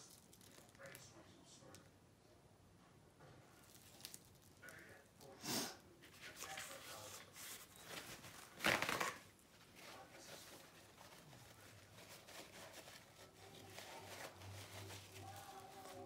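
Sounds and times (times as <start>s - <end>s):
faint low hum: 0.0s - 16.0s
canvas rustling and scraping: 6.1s - 16.0s.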